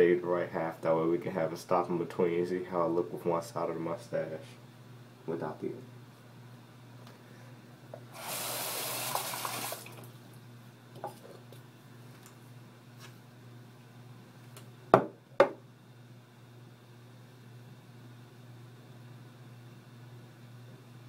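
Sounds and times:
faucet running water: 8.0s - 10.2s.

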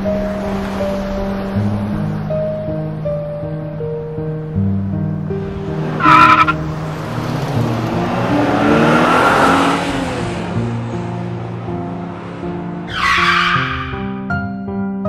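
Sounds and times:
tires screeching: 5.2s - 14.3s.

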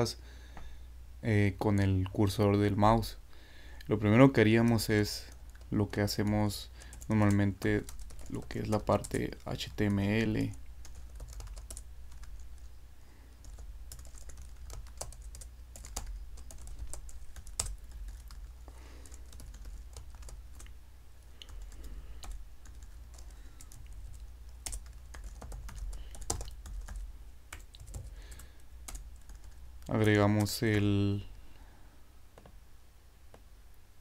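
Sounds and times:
computer keyboard typing: 6.8s - 12.7s, 13.4s - 20.7s, 21.4s - 30.8s.

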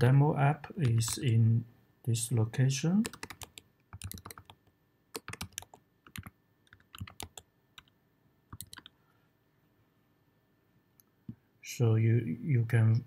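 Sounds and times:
computer keyboard typing: 0.8s - 1.3s, 3.0s - 9.0s.

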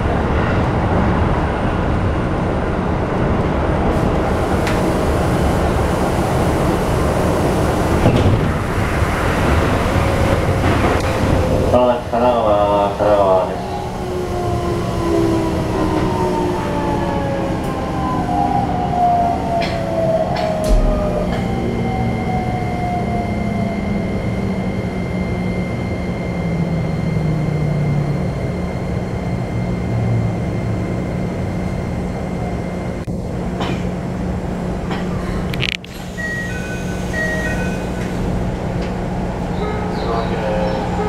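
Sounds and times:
wheels rumbling on rail: 0.0s - 41.0s
electric train motor whine: 4.0s - 33.4s, 34.2s - 41.0s
steady high tone: 11.0s - 33.1s, 36.0s - 41.0s
low thump: 20.6s - 21.7s.

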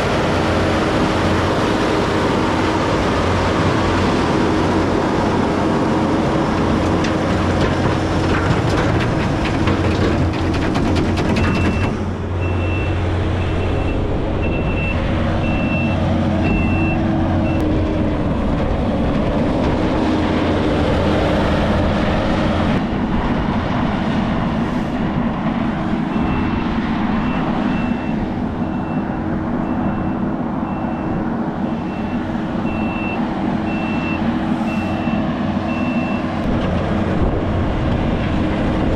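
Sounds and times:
heavy vehicle engine running: 0.0s - 38.9s
reversing alarm beeping: 11.4s - 17.6s, 27.3s - 36.3s.

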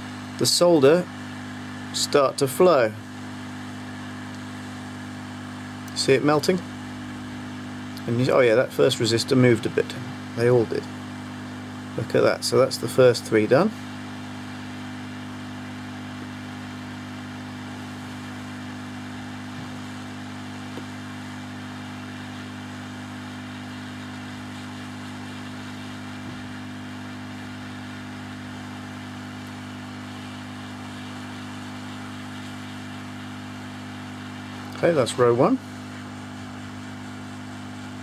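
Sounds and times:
hot air gun motor hum: 0.0s - 38.0s.

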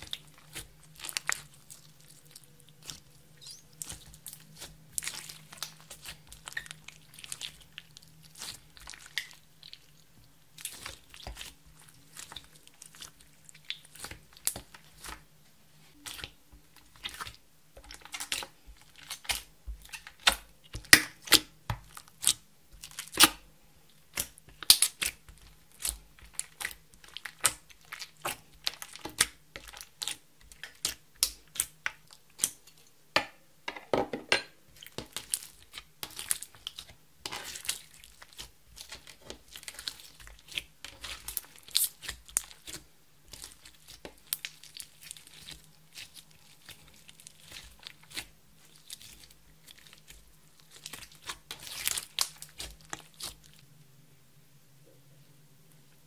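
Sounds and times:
slime popping and crackling: 0.0s - 10.0s, 24.1s - 32.6s, 34.8s - 53.6s.

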